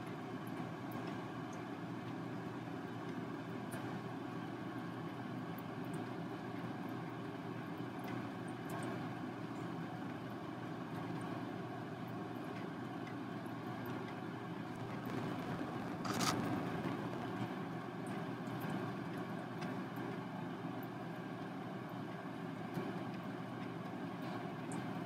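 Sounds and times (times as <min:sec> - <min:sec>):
low background rumble: 0:14.8 - 0:17.6.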